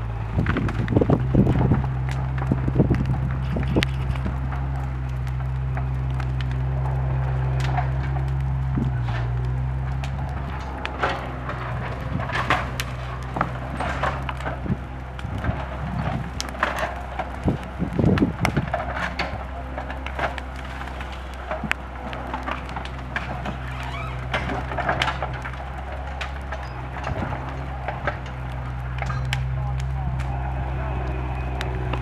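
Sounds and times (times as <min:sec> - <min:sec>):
bonfire crackling: 0:00.0 - 0:32.0
diesel engine running: 0:00.0 - 0:32.0
knocking and rumbling: 0:00.0 - 0:32.0.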